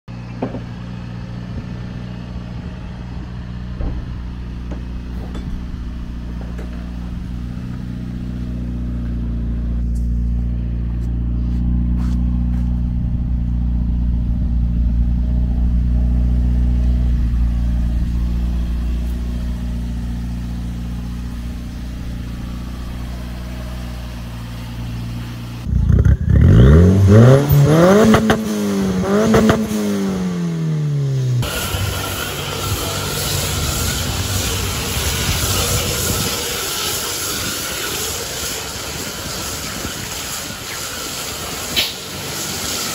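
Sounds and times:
car engine idling: 0:00.1 - 0:42.9
engine revving: 0:01.5 - 0:42.9.

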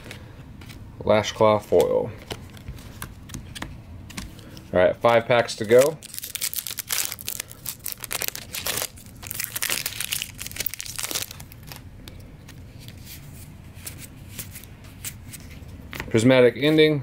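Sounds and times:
foil wrapper crinkling and tearing: 0:05.4 - 0:11.9.

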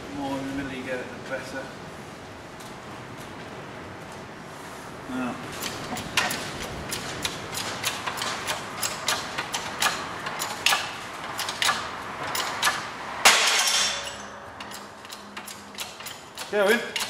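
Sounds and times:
hydraulic press metallic clicks: 0:05.6 - 0:17.0.

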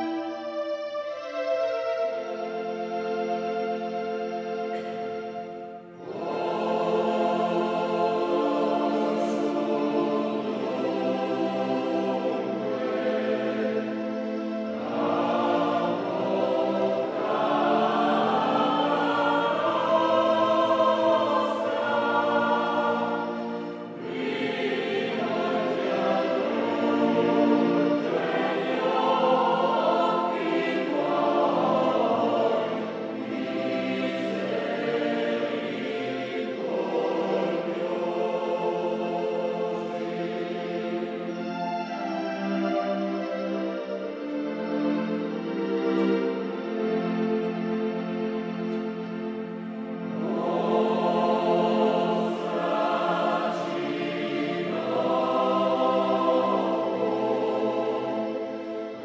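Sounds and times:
small choir singing a hymn: 0:00.0 - 0:59.0.

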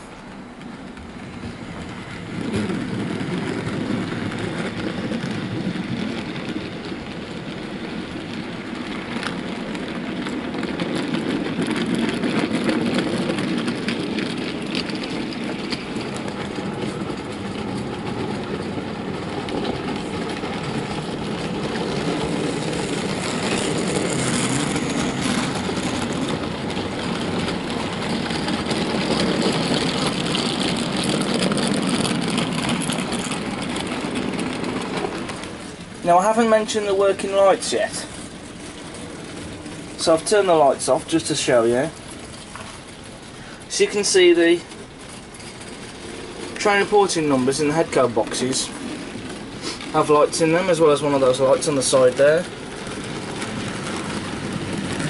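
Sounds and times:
wagons clicking over rail joints: 0:00.0 - 0:55.0.

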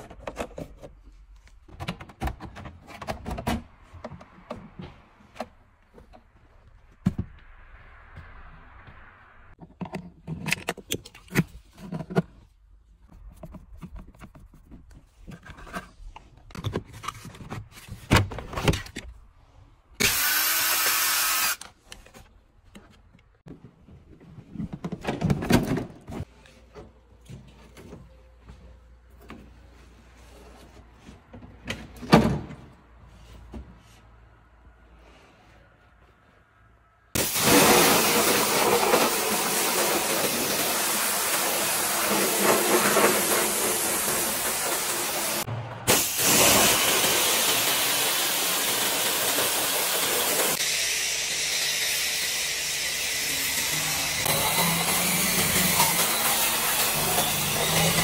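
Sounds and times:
power tool running: 0:20.0 - 0:21.7, 0:37.2 - 0:58.0.

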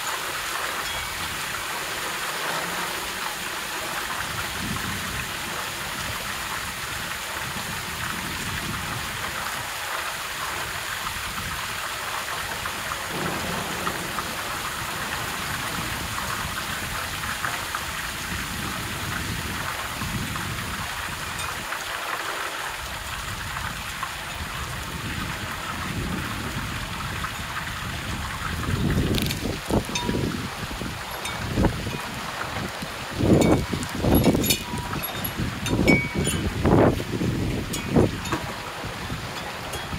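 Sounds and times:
steady rainfall: 0:00.0 - 0:39.9
low rumbles of thunder: 0:12.6 - 0:21.2, 0:24.4 - 0:35.8.

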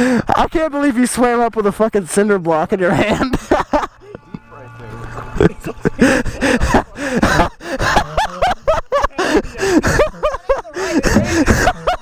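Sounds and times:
people laughing and calling out: 0:02.7 - 0:12.0.

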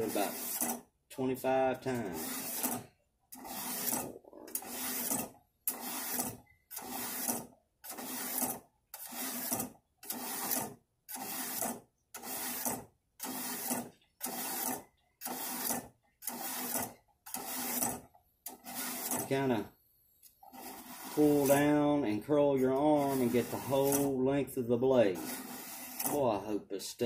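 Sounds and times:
knife scraping through sharpener: 0:02.0 - 0:12.7, 0:20.3 - 0:21.7, 0:22.9 - 0:24.1, 0:25.1 - 0:26.2.

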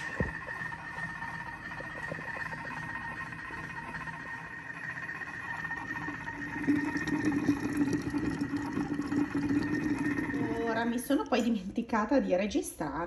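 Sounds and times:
steady motor whine: 0:00.0 - 0:07.4
bubbling water crackle: 0:00.0 - 0:11.4.

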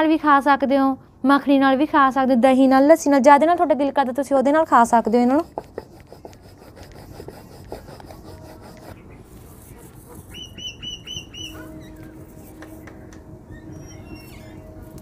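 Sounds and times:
bird chirping: 0:09.0 - 0:12.2, 0:13.5 - 0:14.7.

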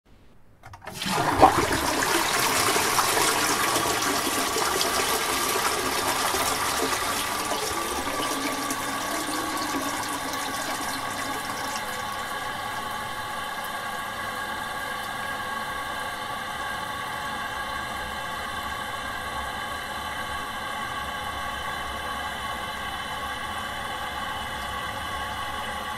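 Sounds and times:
toilet flushing: 0:00.7 - 0:16.0.

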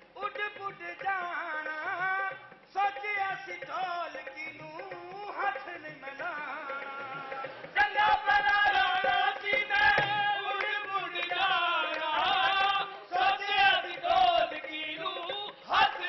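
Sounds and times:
sharp percussive beats: 0:00.0 - 0:16.0
male voices singing: 0:00.2 - 0:16.0.

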